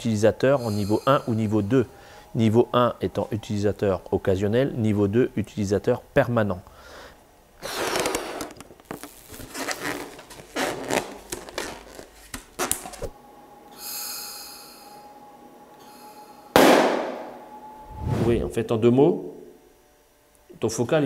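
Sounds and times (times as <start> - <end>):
steady tone: 0.0 - 4.1, 13.2 - 18.7
balloon rubbing and squeaking: 7.6 - 13.0
balloon bursting bang: 16.6 - 17.4.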